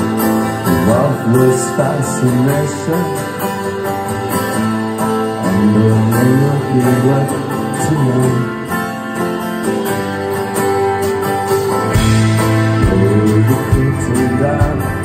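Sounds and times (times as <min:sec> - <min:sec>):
electric guitars: 0:00.0 - 0:15.0
heavy low bass line: 0:11.7 - 0:15.0.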